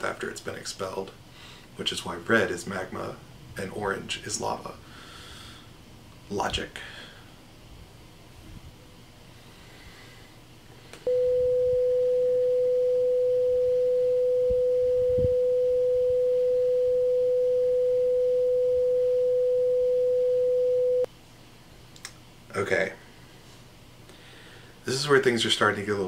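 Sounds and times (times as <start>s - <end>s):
pure sine tone: 11.0s - 21.1s.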